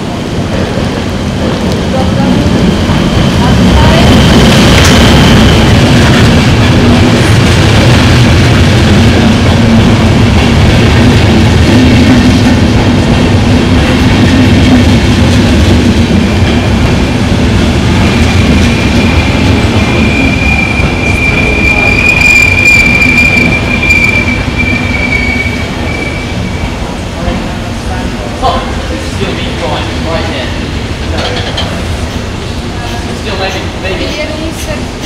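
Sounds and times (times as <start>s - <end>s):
train wheels rumbling on rails: 0.0s - 35.0s
high wheel squeal: 19.0s - 26.8s.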